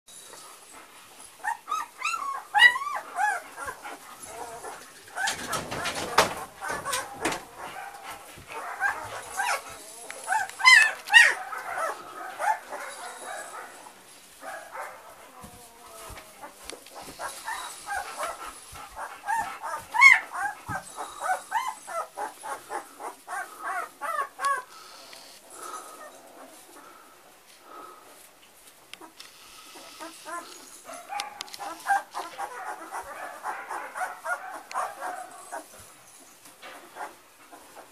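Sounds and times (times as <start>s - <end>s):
puppies whining: 0.3s - 27.0s, 29.0s - 37.9s
dog walking over straw: 0.6s - 24.6s.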